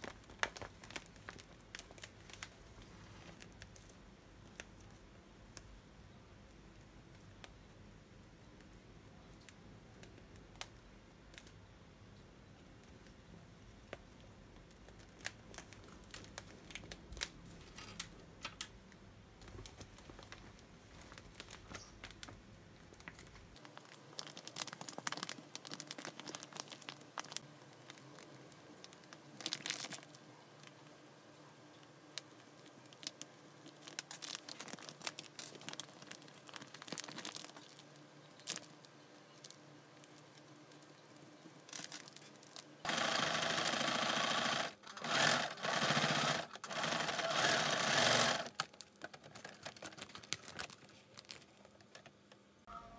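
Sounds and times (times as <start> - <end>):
plastic sheeting crinkling: 0.0 - 4.9, 19.4 - 30.1, 32.6 - 40.2, 44.4 - 52.0.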